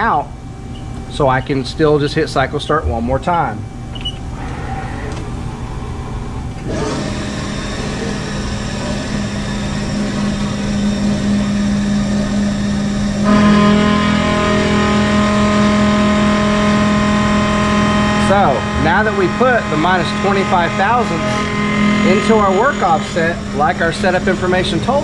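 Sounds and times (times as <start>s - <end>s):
milling machine spindle humming: 0.3s - 25.0s
face mill cutting metal: 6.6s - 25.0s.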